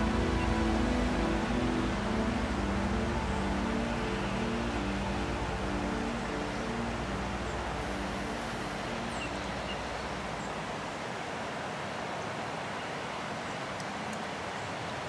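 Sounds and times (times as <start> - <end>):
background music: 0.0 - 10.9.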